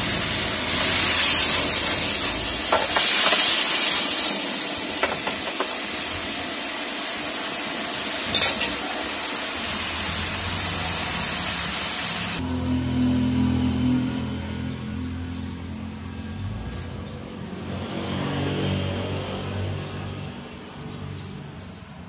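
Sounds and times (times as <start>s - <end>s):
meat sizzling in a frying pan: 0.0s - 12.4s.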